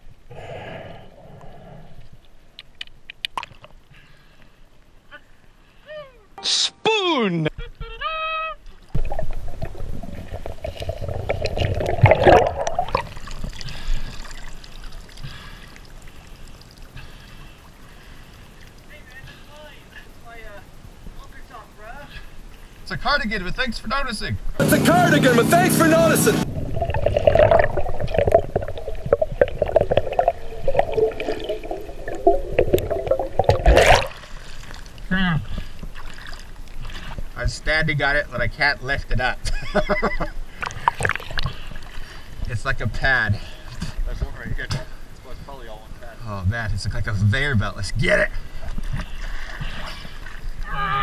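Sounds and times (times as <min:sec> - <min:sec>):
water splashing and dripping: 0:08.7 - 0:19.4, 0:26.5 - 0:37.3
muffled underwater bubbling: 0:08.9 - 0:17.3, 0:26.4 - 0:35.7
muffled wavering hum: 0:26.2 - 0:34.3.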